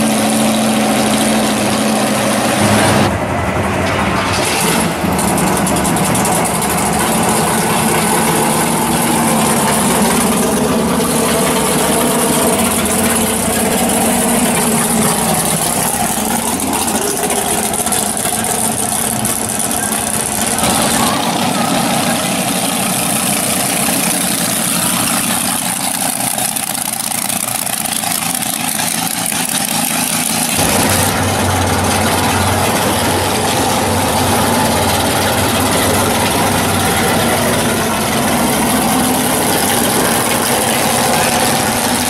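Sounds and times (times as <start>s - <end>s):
car engine idling: 0.0s - 42.0s.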